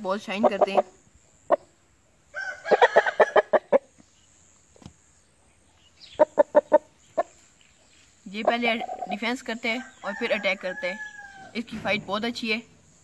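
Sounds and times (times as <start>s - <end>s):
rooster clucking: 0.3s - 1.7s, 2.4s - 4.0s, 6.2s - 7.3s
rooster crowing: 2.3s - 3.8s, 9.7s - 11.6s.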